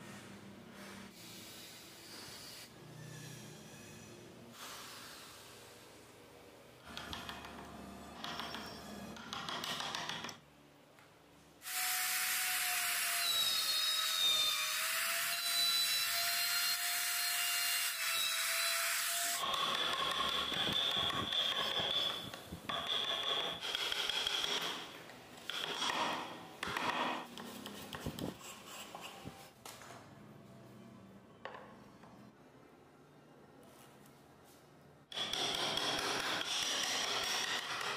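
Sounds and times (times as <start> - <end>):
power tool cutting wood: 11.6 - 22.1.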